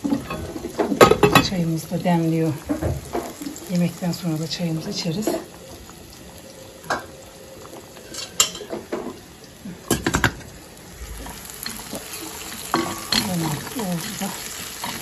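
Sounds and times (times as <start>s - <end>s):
utensils and dishes clinking: 0.0s - 1.6s, 8.0s - 9.2s, 11.2s - 15.0s.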